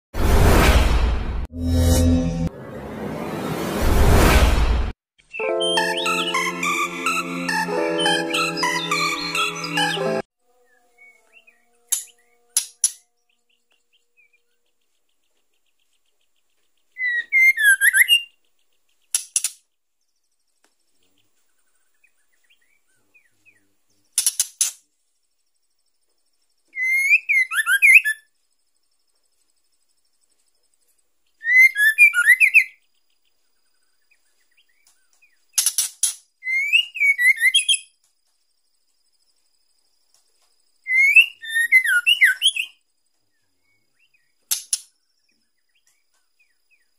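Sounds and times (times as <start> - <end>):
bird chattering whistled calls: 26.8 - 28.2, 36.5 - 37.9, 40.9 - 42.7.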